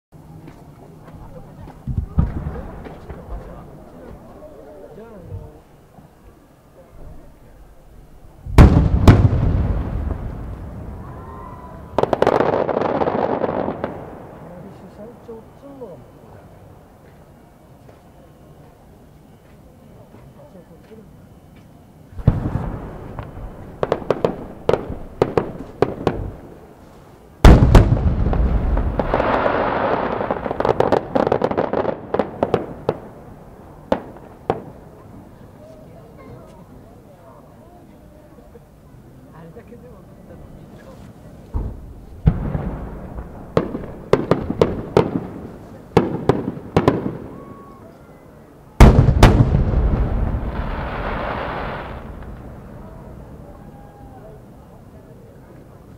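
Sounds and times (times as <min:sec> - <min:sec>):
firework crackling: 0:00.3 - 0:05.8, 0:07.3 - 0:17.4, 0:22.0 - 0:36.8, 0:40.5 - 0:47.8, 0:48.6 - 0:55.9
firework popping: 0:01.6 - 0:04.3, 0:08.4 - 0:14.8, 0:22.2 - 0:26.7, 0:27.4 - 0:35.0, 0:40.8 - 0:47.7, 0:48.8 - 0:53.7
heavy firework boom: 0:01.9 - 0:03.6, 0:08.4 - 0:14.4, 0:22.2 - 0:26.5, 0:27.4 - 0:33.1, 0:41.5 - 0:47.5, 0:48.8 - 0:53.4
firework launch thump: 0:41.5 - 0:45.2.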